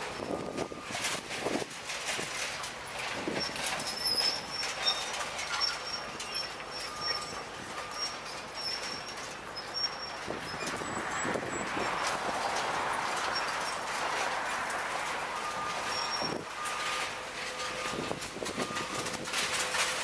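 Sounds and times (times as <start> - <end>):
scrap metal clanking and scraping: 0.0 - 20.0
high squeaks: 3.3 - 11.9, 15.4 - 19.6.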